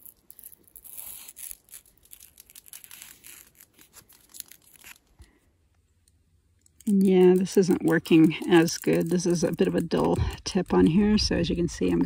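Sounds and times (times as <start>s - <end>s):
tape peeling off paper: 0.0s - 5.2s, 6.8s - 10.5s.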